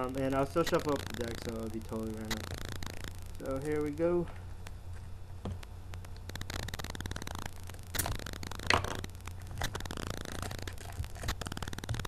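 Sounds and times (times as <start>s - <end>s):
wrappers crinkling and rustling: 6.0s - 12.0s.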